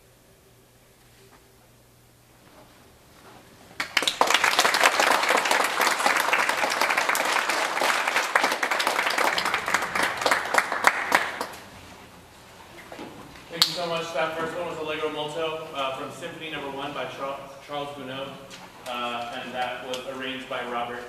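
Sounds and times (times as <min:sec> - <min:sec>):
audience applause: 0:03.8 - 0:11.9.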